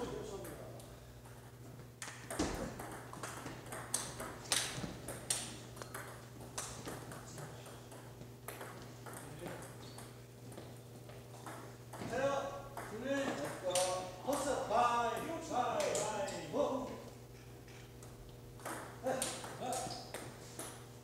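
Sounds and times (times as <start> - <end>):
steady low hum: 0.0 - 21.0
table tennis balls clicking: 2.0 - 16.4, 17.4 - 20.9.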